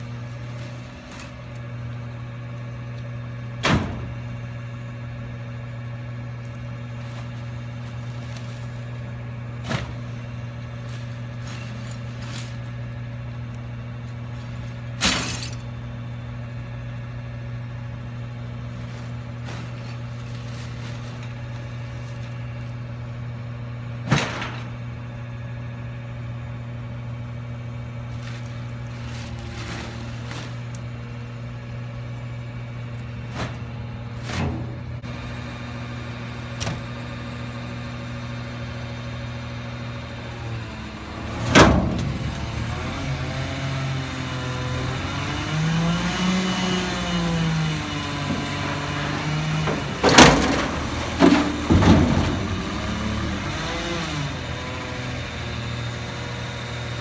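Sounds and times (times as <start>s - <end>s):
garbage truck idling: 0.0s - 57.0s
truck engine revving: 28.6s - 57.0s
loud metal bangs: 48.3s - 53.5s
trash bags knocking: 49.4s - 53.4s.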